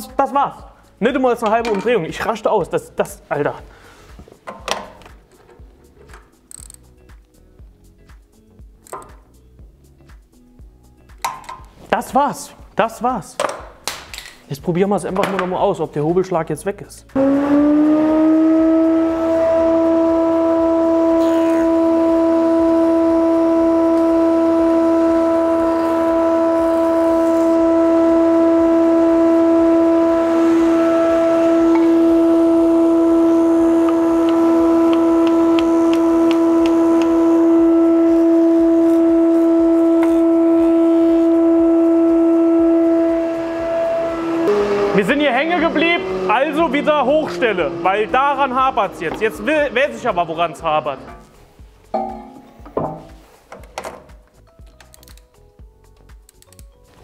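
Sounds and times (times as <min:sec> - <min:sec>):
planer humming: 0:17.2 - 0:50.4.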